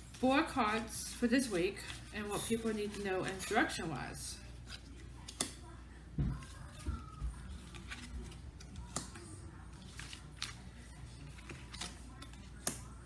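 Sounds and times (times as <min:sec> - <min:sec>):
cards clicking and tapping: 0:04.7 - 0:05.6, 0:06.3 - 0:10.6, 0:11.3 - 0:12.9.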